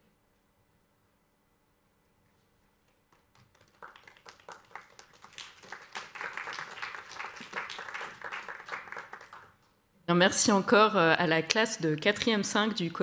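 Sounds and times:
audience applause: 0:03.2 - 0:09.6.

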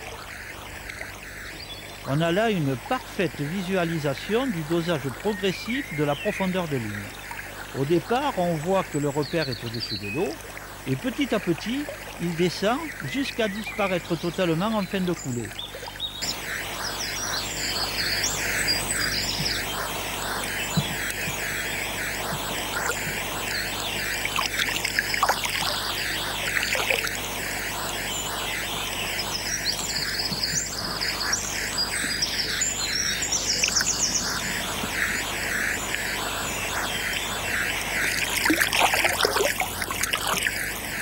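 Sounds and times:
birds chirping: 0:00.0 - 0:41.0
fish splashing in water: 0:22.7 - 0:27.2, 0:37.5 - 0:41.0.

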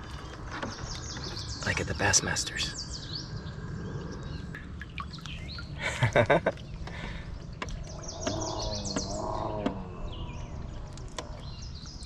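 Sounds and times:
birds chirping: 0:00.0 - 0:12.0
steady low rumble: 0:02.8 - 0:12.0.

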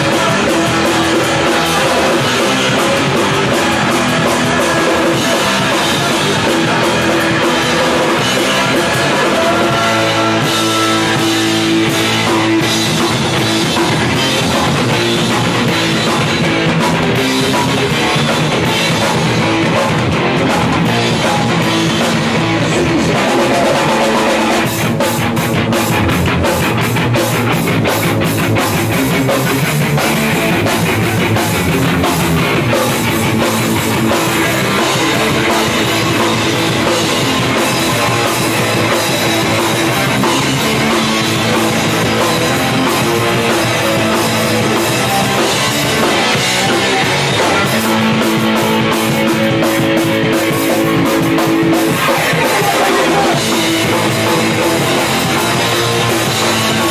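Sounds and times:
bass guitar: 0:00.0 - 0:56.9
distorted electric guitar: 0:00.0 - 0:56.9
rapid drum and cymbal hits: 0:00.0 - 0:56.9.

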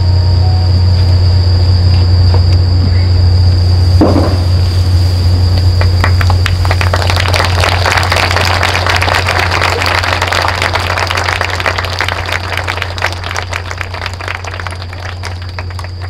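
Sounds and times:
low electrical hum: 0:00.0 - 0:16.0
audience applauding: 0:05.7 - 0:16.0.

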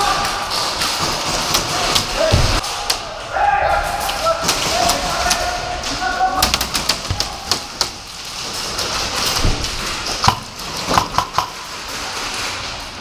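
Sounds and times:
pellets striking plywood walls: 0:06.4 - 0:12.8
airsoft gunfire: 0:10.2 - 0:11.6.

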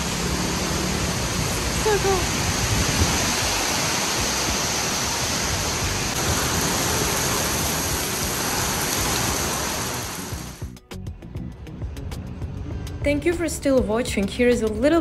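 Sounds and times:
heavy rain on pavement: 0:00.0 - 0:10.6.

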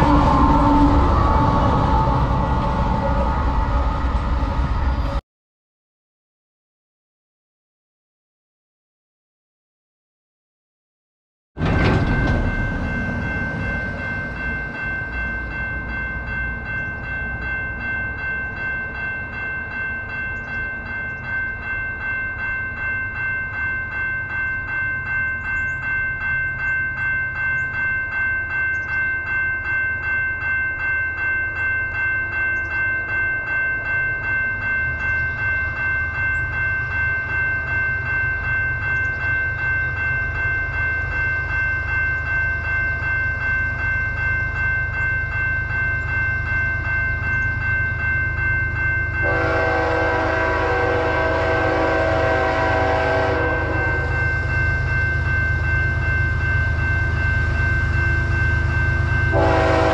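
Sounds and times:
low rumble: 0:00.0 - 0:05.2
level crossing bell ringing: 0:11.6 - 0:59.9.

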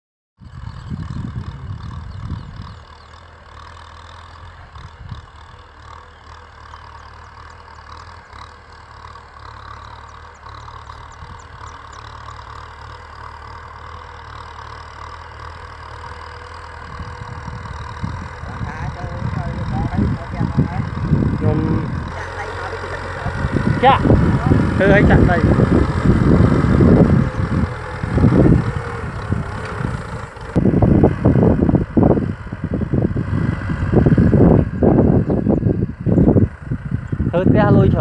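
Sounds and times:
wind buffeting microphone: 0:00.4 - 0:03.1, 0:04.5 - 0:05.7, 0:10.8 - 0:11.7, 0:16.7 - 0:38.0
distant tractor diesel engine: 0:00.4 - 0:38.0.

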